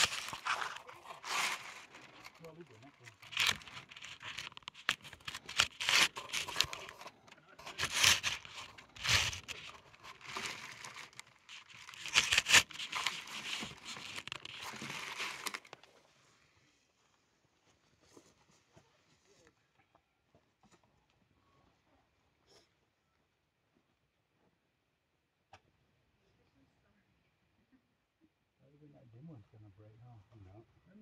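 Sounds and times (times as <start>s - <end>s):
sleeve rubbing on microphone: 0.0s - 15.7s.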